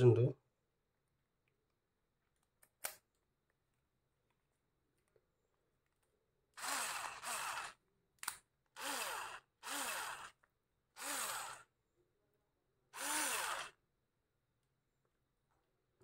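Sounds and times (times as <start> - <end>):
cordless screwdriver whirring: 6.6 - 7.8, 8.8 - 10.4, 11.0 - 11.7, 13.0 - 13.8
small click: 8.2 - 8.4.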